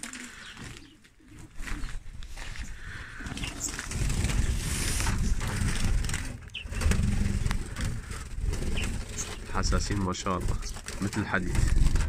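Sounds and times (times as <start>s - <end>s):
rumbling rubbing on microphone: 0.0s - 12.0s
small birds chirping: 0.0s - 12.0s.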